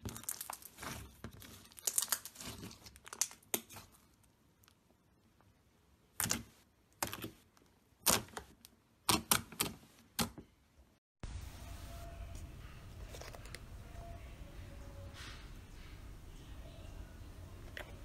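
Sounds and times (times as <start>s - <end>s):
faint handling sounds: 12.0s - 16.1s.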